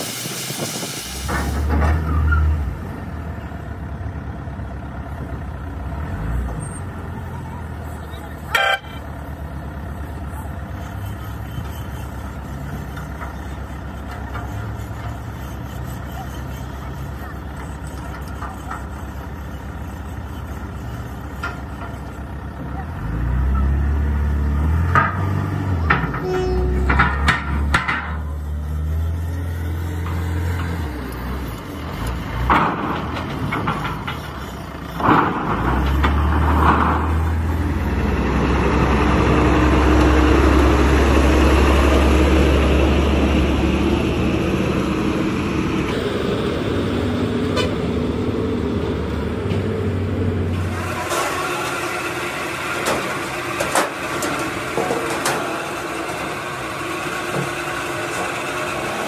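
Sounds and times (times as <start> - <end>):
diesel truck engine running: 0.0 - 59.0
truck horn toots: 8.4 - 9.0, 26.1 - 27.0
workshop clatter: 10.7 - 22.8, 24.8 - 29.2, 31.7 - 37.7, 50.5 - 59.0.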